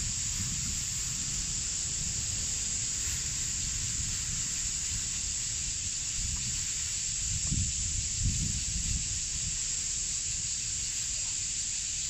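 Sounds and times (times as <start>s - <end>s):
steady high hiss: 0.0s - 12.0s
wind rumble on microphone: 0.0s - 12.0s.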